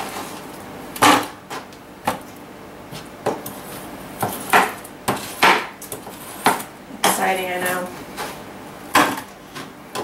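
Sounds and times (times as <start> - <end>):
knife chopping on plastic board: 4.2 - 7.3, 8.9 - 10.0.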